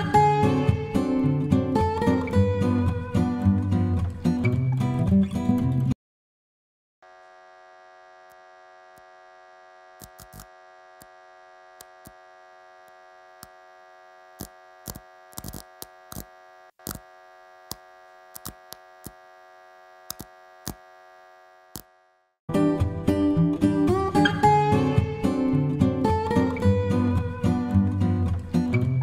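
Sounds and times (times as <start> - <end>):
buzzing drone of held tones: 7.0 - 22.3
sharp clicks and crackles: 10.0 - 11.1, 11.8 - 12.2, 14.4 - 19.2, 20.0 - 20.8.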